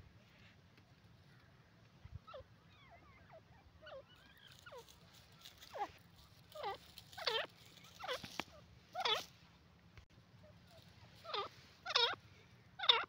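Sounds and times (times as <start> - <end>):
francolin calling: 2.2 - 9.4, 10.4 - 13.0.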